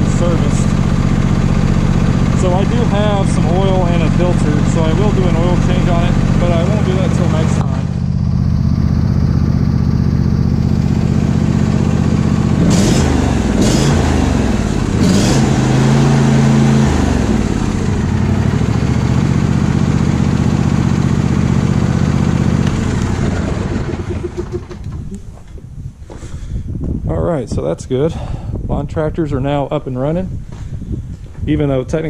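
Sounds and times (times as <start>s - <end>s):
lawn tractor engine running: 0.0s - 25.4s.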